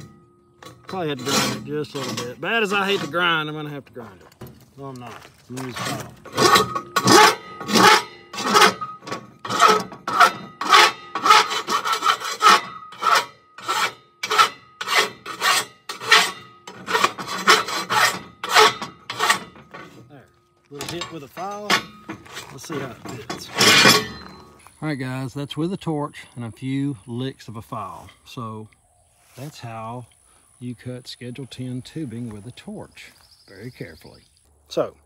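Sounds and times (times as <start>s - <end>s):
faint metal ringing: 0.0s - 2.7s
file rasping on steel: 1.1s - 3.2s, 5.7s - 20.0s.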